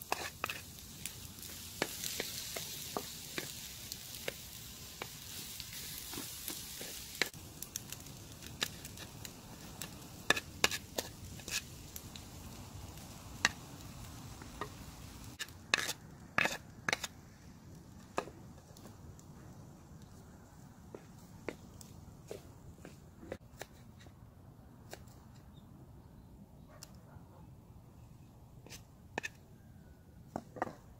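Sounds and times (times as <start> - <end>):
spatula scraping a metal pan: 0.0 - 0.8, 10.3 - 11.7, 15.4 - 17.1
faint sizzle in a pan: 0.0 - 15.5.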